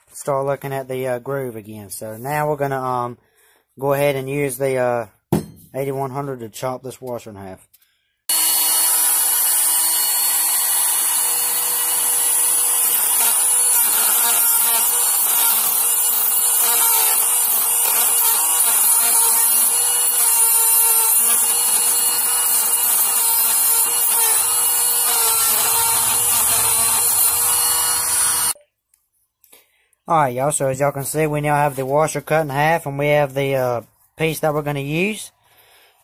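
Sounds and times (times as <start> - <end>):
rotary tool grinding metal: 8.3 - 28.6.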